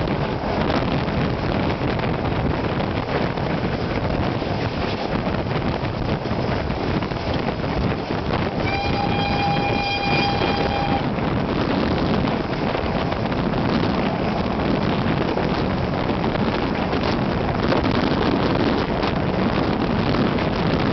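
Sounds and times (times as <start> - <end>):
train rolling: 0.0 - 20.9
wind at window: 0.0 - 20.9
steam locomotive whistle: 8.6 - 11.1.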